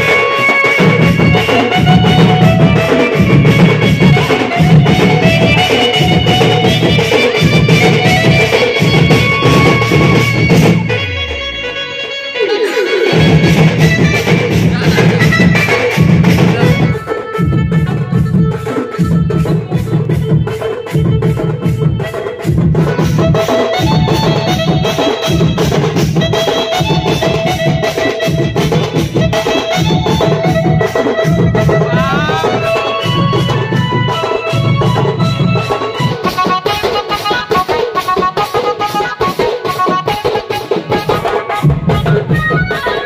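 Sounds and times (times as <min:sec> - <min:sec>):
loud dance music: 0:31.8 - 0:33.0.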